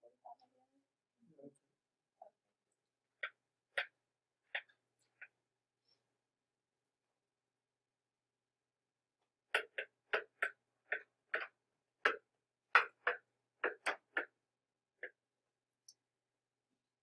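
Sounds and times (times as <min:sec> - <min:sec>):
stylus tapping on tablet screen: 0:03.1 - 0:05.4, 0:09.5 - 0:14.4, 0:15.0 - 0:16.0.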